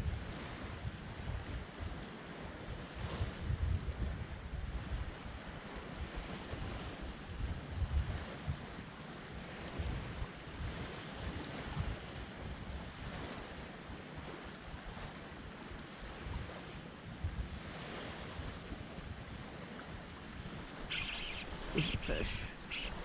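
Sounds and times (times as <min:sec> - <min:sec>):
small waves washing ashore: 0:04.8 - 0:23.0.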